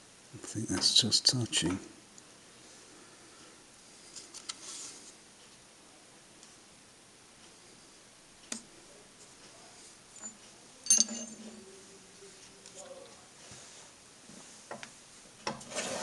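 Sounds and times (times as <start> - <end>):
sharp metallic clink: 10.2 - 11.5.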